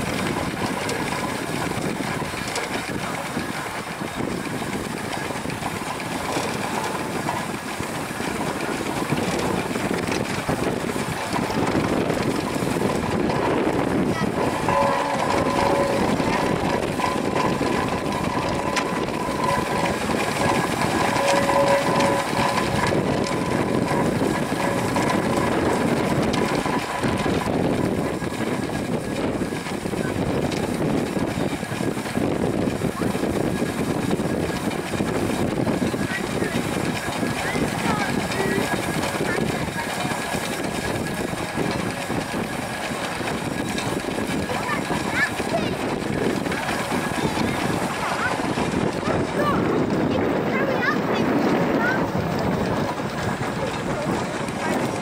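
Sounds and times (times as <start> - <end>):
steady mechanical whine: 0.0 - 55.0
steam engine clatter: 0.0 - 55.0.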